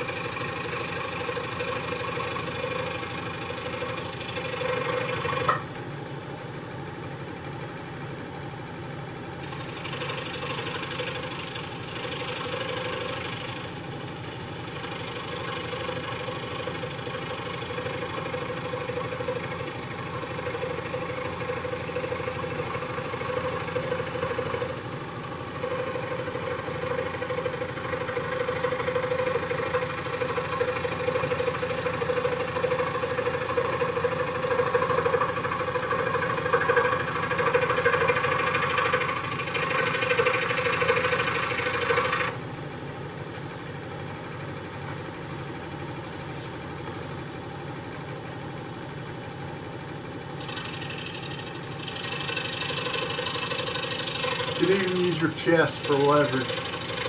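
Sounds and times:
scroll saw cutting wood: 0.0s - 5.6s, 9.4s - 42.4s, 50.4s - 57.0s.

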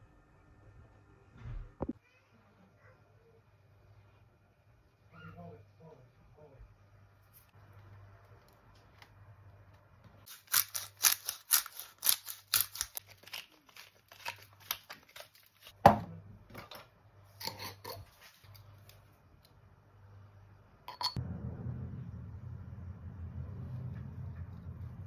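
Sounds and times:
spice grinder crunching: 10.3s - 15.7s.

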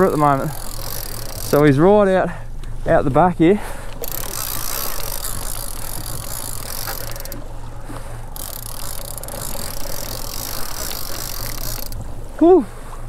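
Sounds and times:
fishing reel winding: 0.0s - 1.8s, 4.0s - 7.4s, 8.4s - 12.0s
outboard motor running: 0.0s - 13.0s.

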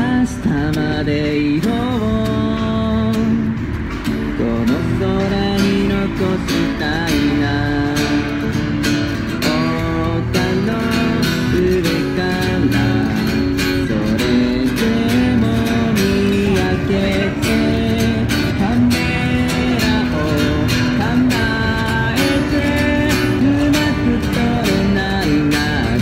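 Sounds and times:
acoustic guitar strummed: 0.0s - 26.0s.

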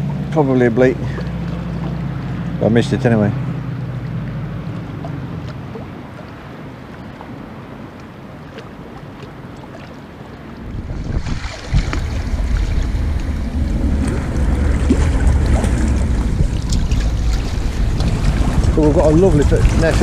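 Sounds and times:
wind buffeting microphone: 10.4s - 20.0s.

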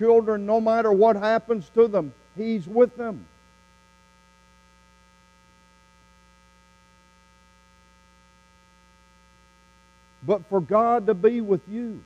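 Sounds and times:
faint electrical mains hum: 0.0s - 12.0s.

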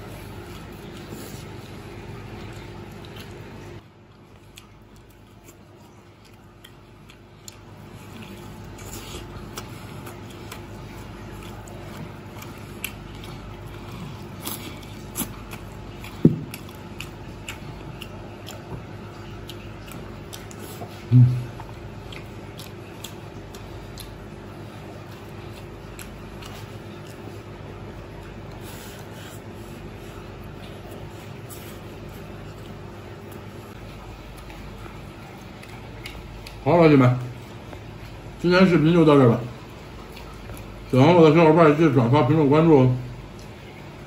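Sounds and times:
chewing crispy fried chicken: 0.0s - 44.0s
low hum: 17.6s - 23.1s.

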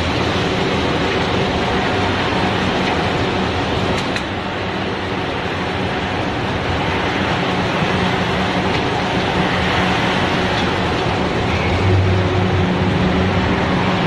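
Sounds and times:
machinery running: 0.0s - 14.0s.

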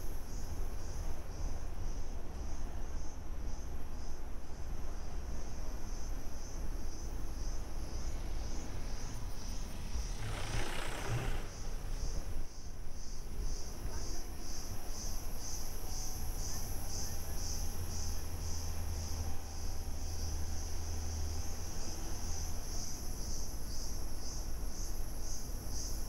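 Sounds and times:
insects chirring: 0.0s - 26.0s
brief rushing noise: 9.7s - 12.3s.

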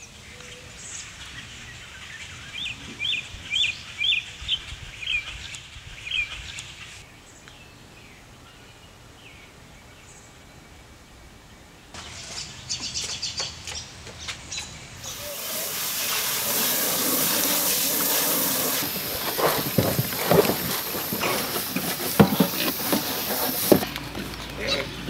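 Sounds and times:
hose water spraying into trough: 15.0s - 23.9s
pigs grunting: 15.1s - 23.8s.

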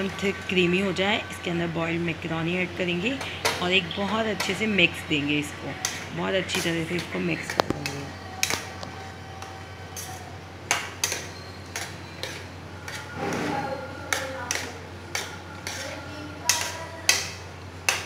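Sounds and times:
spoon stirring pasta in sauce: 3.2s - 18.0s
spoon clinking against pan: 10.0s - 13.2s, 14.0s - 15.9s.

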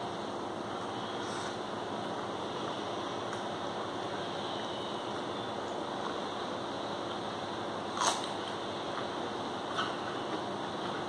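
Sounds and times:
steady background hiss: 0.0s - 11.0s
man eating by hand: 5.1s - 11.0s.

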